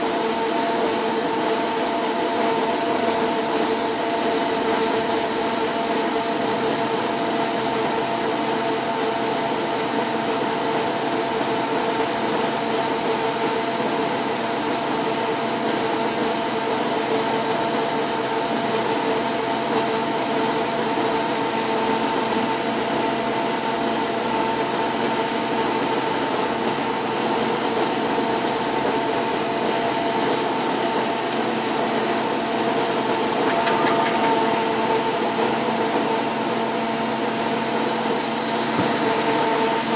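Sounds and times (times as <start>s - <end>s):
lathe machine hum: 24.9s - 39.9s.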